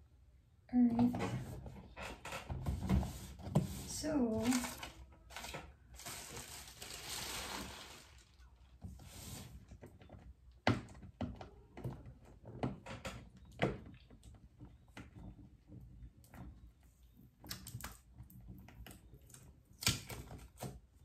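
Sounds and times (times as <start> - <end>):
handling rustle: 3.7 - 8.6.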